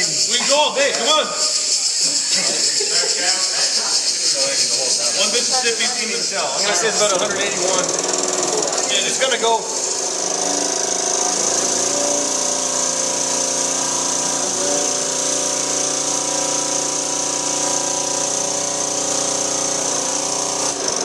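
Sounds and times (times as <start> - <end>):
compressed air hissing: 0.0 - 7.2.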